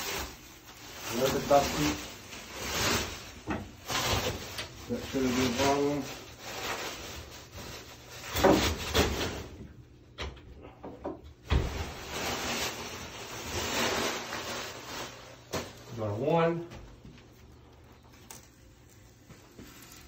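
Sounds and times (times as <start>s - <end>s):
plastic film rubbing and scraping: 0.0s - 9.5s, 11.6s - 15.9s, 18.2s - 20.0s.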